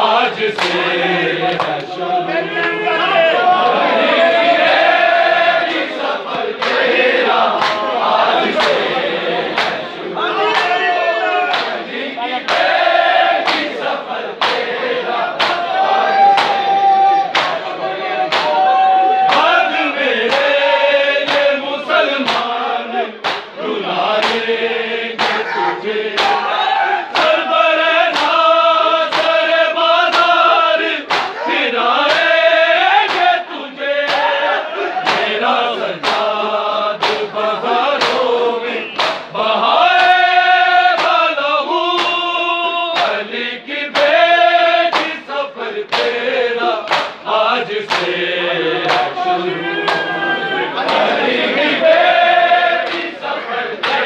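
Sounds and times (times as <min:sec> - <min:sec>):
men singing in chorus: 0:00.0 - 0:54.0
hands slapping chests: 0:00.6 - 0:02.0, 0:05.7 - 0:07.9, 0:08.5 - 0:08.9, 0:09.5 - 0:10.8, 0:11.5 - 0:14.7, 0:15.4 - 0:16.7, 0:17.3 - 0:17.7, 0:18.3 - 0:18.7, 0:19.3 - 0:19.6, 0:20.2 - 0:20.6, 0:21.2 - 0:21.6, 0:22.2 - 0:22.5, 0:23.2 - 0:24.5, 0:25.2 - 0:26.5, 0:27.1 - 0:27.4, 0:28.1 - 0:30.4, 0:31.0 - 0:31.4, 0:32.0 - 0:32.4, 0:33.0 - 0:33.4, 0:34.0 - 0:34.4, 0:35.0 - 0:35.4, 0:36.0 - 0:36.4, 0:37.0 - 0:37.4, 0:38.0 - 0:38.3, 0:38.9 - 0:39.3, 0:40.9 - 0:41.3, 0:41.9 - 0:42.3, 0:42.9 - 0:43.2, 0:43.9 - 0:44.2, 0:44.9 - 0:45.2, 0:45.9 - 0:46.2, 0:46.8 - 0:47.2, 0:47.9 - 0:48.2, 0:48.8 - 0:49.2, 0:50.8 - 0:51.2, 0:52.8 - 0:54.0.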